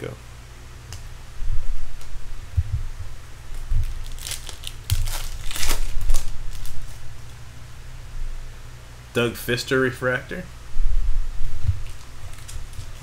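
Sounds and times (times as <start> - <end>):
foil wrapper tearing and crinkling: 3.5 - 7.0, 11.8 - 13.0.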